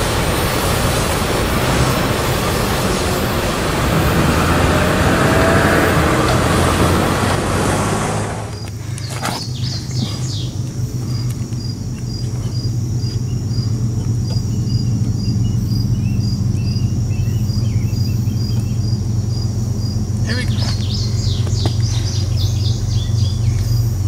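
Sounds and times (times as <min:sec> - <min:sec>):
birds chirping: 0:00.0 - 0:24.0
steady low hum: 0:00.0 - 0:24.0
insect chirping rhythmically: 0:08.5 - 0:24.0.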